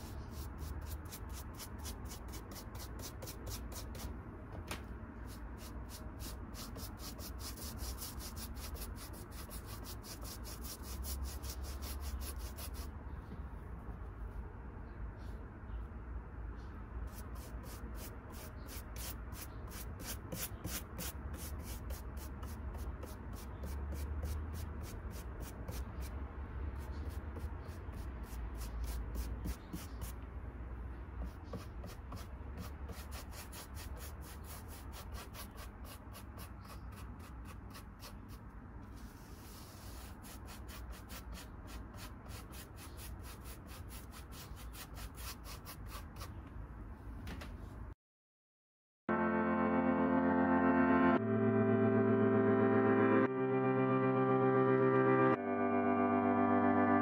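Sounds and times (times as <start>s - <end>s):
paintbrush scrubbing: 5.3s - 12.9s, 17.1s - 26.2s, 26.8s - 30.2s, 31.2s - 46.4s.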